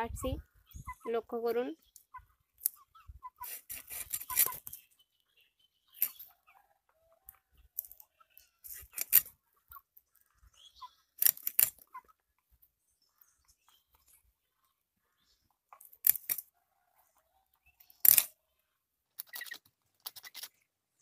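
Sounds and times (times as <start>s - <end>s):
fish scaling scraping strokes: 3.4s - 4.7s.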